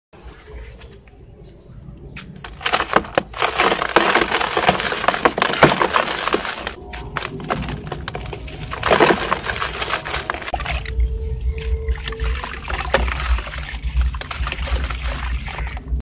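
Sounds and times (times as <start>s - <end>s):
crumbs falling into plastic basin: 2.4s - 10.8s, 12.4s - 16.0s
dry balls crunching in hands: 2.4s - 10.8s.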